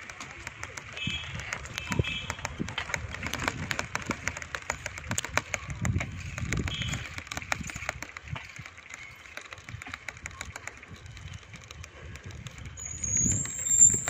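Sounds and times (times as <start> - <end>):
bicycle clicking and rattling: 0.0 - 14.0
wind gusts on microphone: 10.9 - 14.0.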